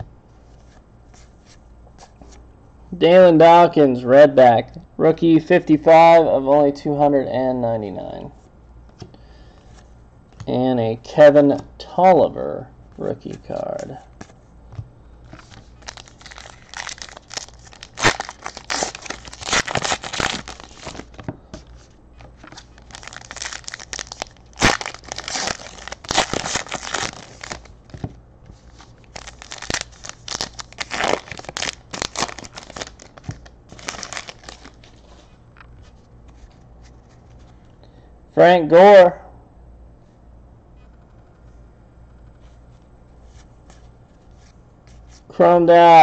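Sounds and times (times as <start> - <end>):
card wrappers crinkling: 15.3 - 37.6.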